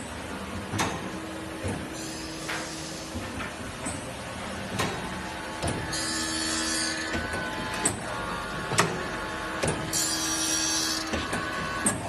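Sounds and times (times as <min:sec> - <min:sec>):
blade sharpening machine running: 0:05.9 - 0:11.9.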